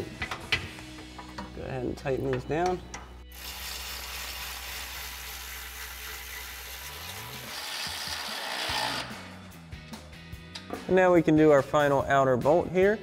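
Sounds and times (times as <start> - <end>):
electric ratchet motor whirring: 3.3 - 9.2.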